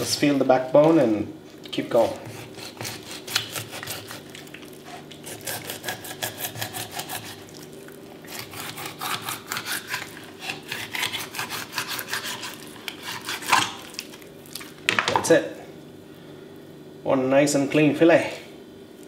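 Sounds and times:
knife rasping over fish bone: 0:02.0 - 0:14.2.

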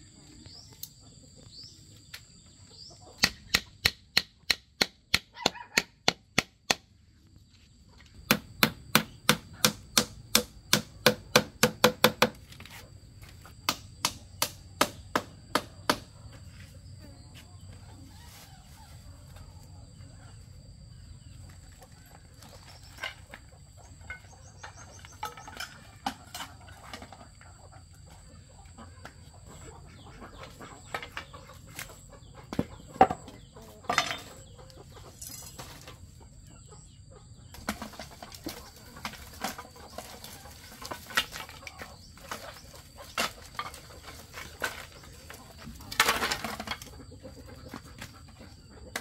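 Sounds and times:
bamboo pieces clattering: 0:21.5 - 0:27.6, 0:33.8 - 0:34.4, 0:35.0 - 0:36.1, 0:37.5 - 0:48.4.

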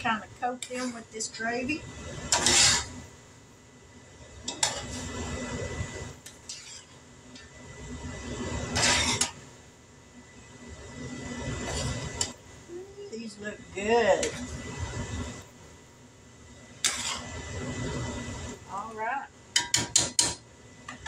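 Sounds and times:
utensil scraping a skillet: 0:00.0 - 0:03.1, 0:04.4 - 0:09.5, 0:11.0 - 0:12.4, 0:13.3 - 0:15.4, 0:16.8 - 0:18.9.

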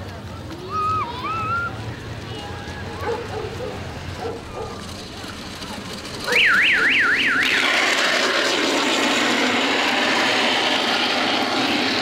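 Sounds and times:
loud rushing noise: 0:03.8 - 0:12.0
electronic siren whooping: 0:06.3 - 0:07.8.

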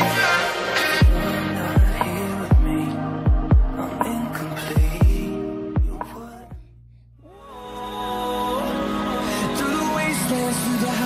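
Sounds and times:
instrumental music with held chords: 0:00.0 - 0:11.0
deep beats: 0:01.0 - 0:07.0.

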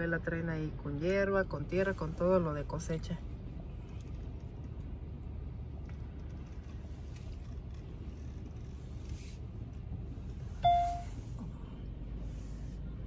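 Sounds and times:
car rolling rumble: 0:00.0 - 0:13.0
short loud beep: 0:10.6 - 0:11.2.

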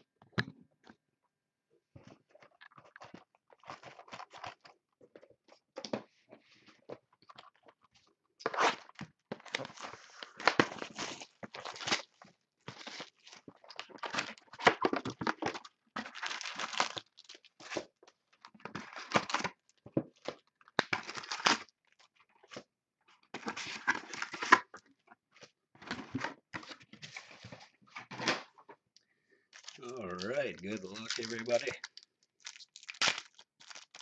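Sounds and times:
shrink-wrap tearing and crinkling: 0:08.4 - 0:17.9, 0:18.6 - 0:21.7, 0:29.6 - 0:34.0.

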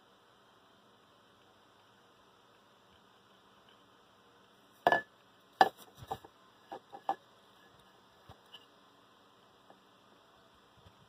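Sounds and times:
steel tumbler handling knocks: 0:04.8 - 0:07.2.

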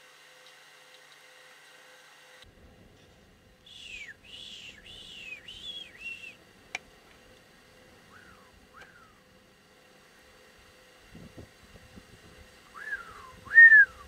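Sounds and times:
cranes calling: 0:03.7 - 0:06.4, 0:07.9 - 0:09.5, 0:12.7 - 0:14.0.

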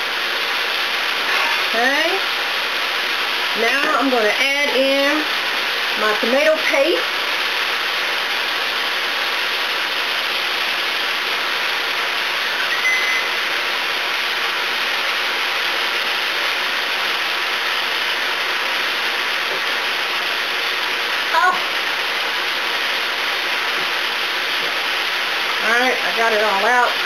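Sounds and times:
vegetables sizzling in a skillet: 0:00.0 - 0:27.0
short high squeak: 0:12.4 - 0:13.4.

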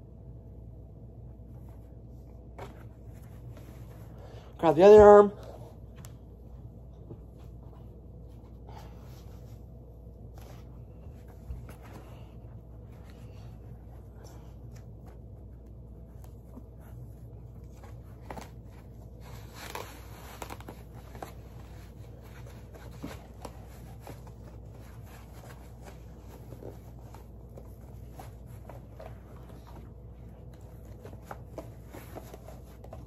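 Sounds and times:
low steady hum: 0:00.0 - 0:33.0
rustling fabric: 0:00.4 - 0:33.0.

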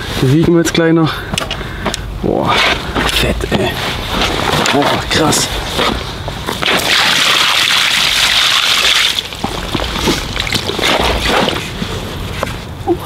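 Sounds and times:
water dripping: 0:06.6 - 0:11.2
water splashing around fish: 0:06.6 - 0:11.6.

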